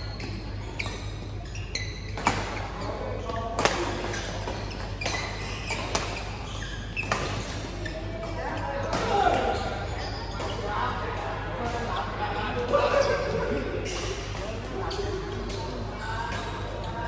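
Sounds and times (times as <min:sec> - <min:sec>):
sneakers squeaking on court: 0:00.0 - 0:11.0, 0:12.9 - 0:17.0
racket hitting shuttlecock: 0:03.6 - 0:06.3.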